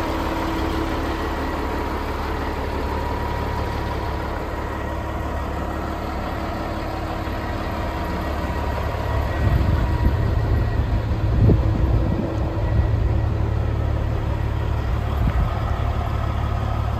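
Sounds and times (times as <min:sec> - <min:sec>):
diesel engine idling: 0:00.0 - 0:16.9
uneven low rumble: 0:09.1 - 0:16.6.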